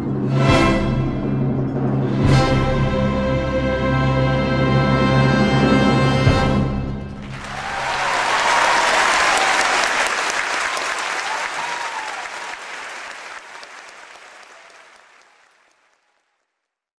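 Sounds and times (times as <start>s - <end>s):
audience applause: 7.2s - 16.6s.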